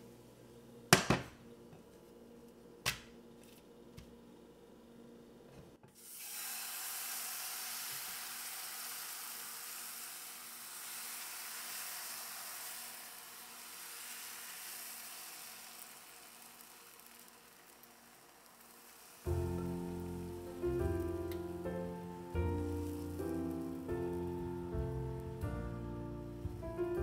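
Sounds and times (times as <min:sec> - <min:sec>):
batter sizzling in frying pan: 0:06.0 - 0:27.0.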